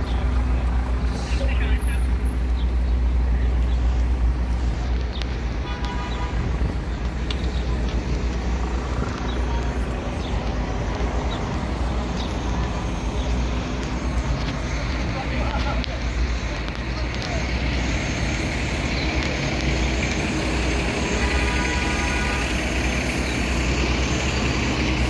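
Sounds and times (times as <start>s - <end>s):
idling bus engines rumbling: 0.0s - 25.0s
people's voices: 0.0s - 25.0s
vehicle horn toot: 5.6s - 6.6s, 21.1s - 22.6s.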